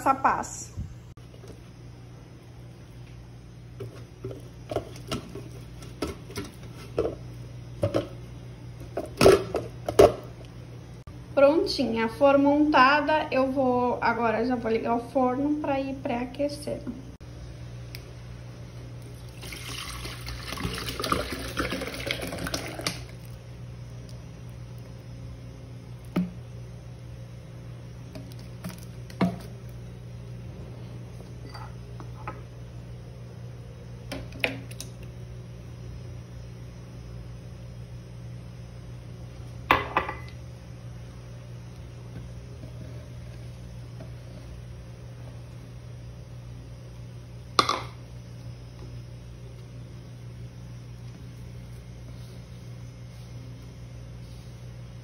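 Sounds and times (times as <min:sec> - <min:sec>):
milk pouring into plastic jar: 0:19.0 - 0:23.4.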